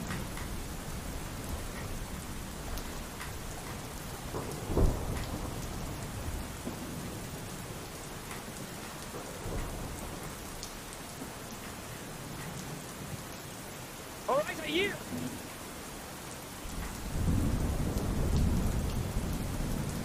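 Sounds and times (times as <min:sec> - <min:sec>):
pouring rain: 0:00.0 - 0:20.0
loud thunderclap: 0:04.3 - 0:06.0, 0:17.0 - 0:20.0.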